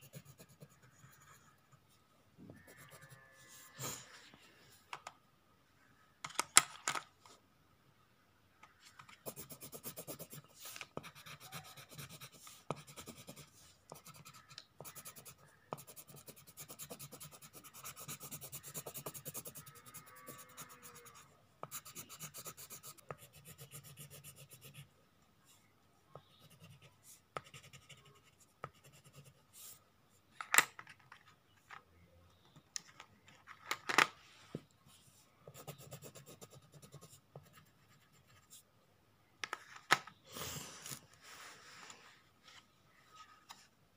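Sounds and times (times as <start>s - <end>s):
pencil scratching on paper: 0.0s - 1.6s, 9.2s - 24.9s, 26.2s - 29.8s, 35.4s - 38.6s.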